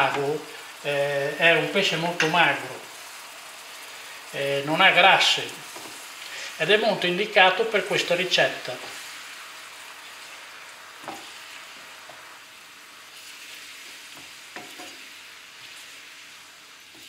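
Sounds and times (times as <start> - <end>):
food sizzling gently in oil: 0.0 - 17.0
wooden spoon knocking on pan: 11.0 - 11.3, 14.1 - 15.0.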